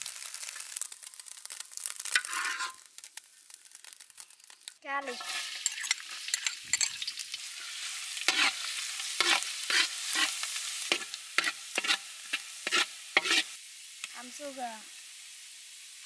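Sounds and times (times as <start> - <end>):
garlic sizzling in hot oil: 0.0 - 16.0
metal spatula scraping a wok: 2.1 - 2.9, 5.1 - 13.6.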